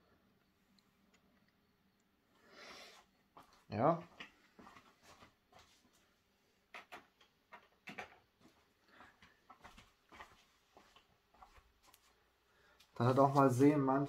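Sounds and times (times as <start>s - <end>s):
faint clicks and light knocks: 6.7s - 12.1s.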